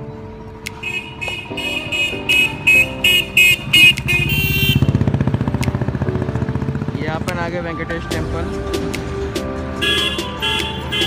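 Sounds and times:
vehicle horn beeping: 0.8 - 5.1, 9.8 - 11.0
motorcycle engine buzzing: 0.8 - 7.9.

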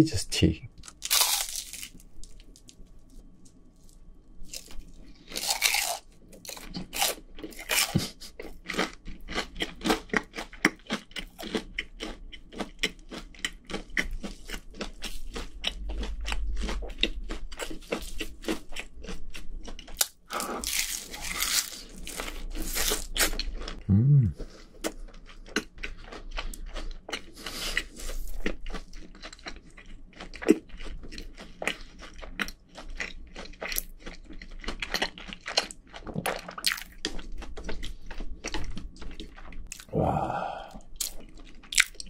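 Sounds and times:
crunching fried cheese stick: 0.8 - 23.8, 24.9 - 42.0.

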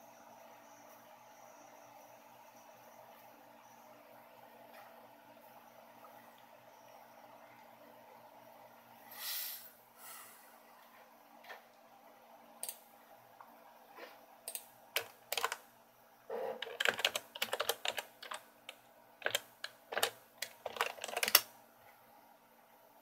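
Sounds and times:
keyboard key clicks: 16.6 - 21.5.

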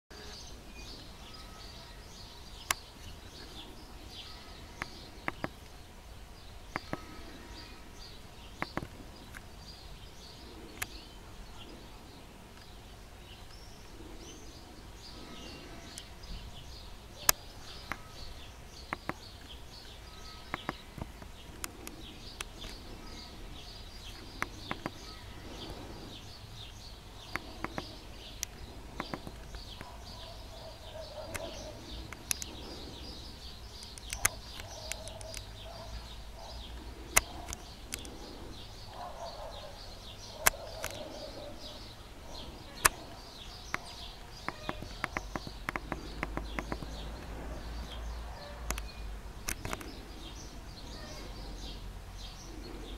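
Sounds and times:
small birds chirping: 0.1 - 52.9
steady low rumble: 2.8 - 44.4
sharp clicks: 4.8 - 5.8, 6.7 - 7.4, 8.6 - 9.6, 10.6 - 11.0, 17.2 - 23.2, 23.9 - 25.9, 27.2 - 30.3, 30.9 - 38.5, 40.2 - 41.8, 42.4 - 47.5, 48.7 - 51.3.

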